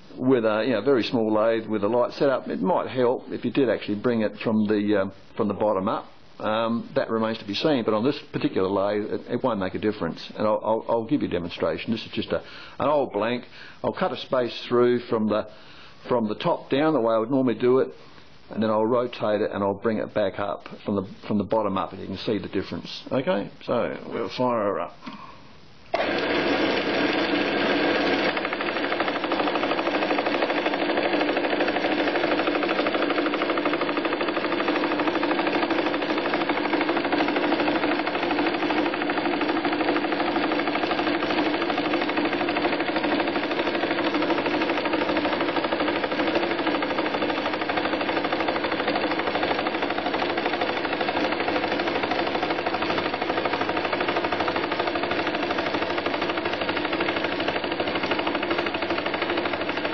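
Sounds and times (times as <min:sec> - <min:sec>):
lathe cutting metal clattering: 0:26.0 - 0:59.9.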